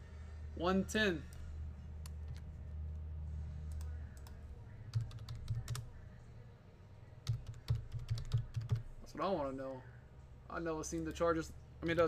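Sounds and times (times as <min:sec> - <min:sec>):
steady low hum: 0:00.0 - 0:12.0
computer keyboard keystrokes: 0:03.7 - 0:05.8, 0:07.2 - 0:08.9.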